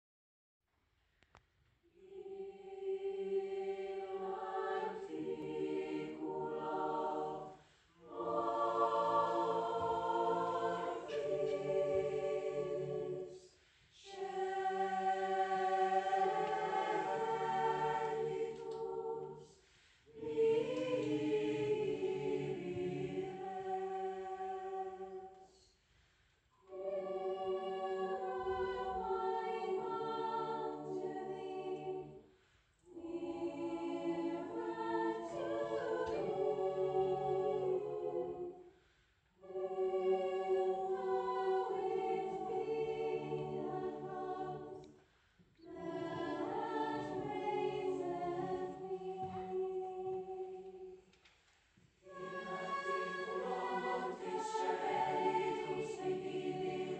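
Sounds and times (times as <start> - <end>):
mixed choir singing a cappella: 1.9 - 25.7, 26.6 - 51.2, 52.0 - 56.9.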